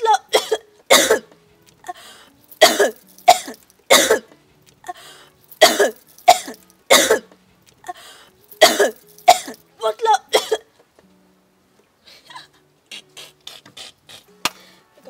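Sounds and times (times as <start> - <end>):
woman coughing: 0.0 - 1.3, 2.6 - 4.3, 5.6 - 7.3, 8.6 - 10.7
gasping breath: 1.8 - 2.4, 4.8 - 5.4, 7.8 - 8.4, 13.2 - 14.9.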